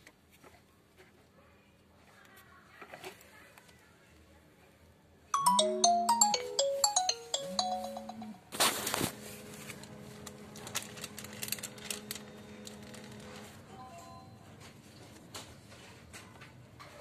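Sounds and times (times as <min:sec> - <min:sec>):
phone ringtone melody: 0:05.4 - 0:08.5.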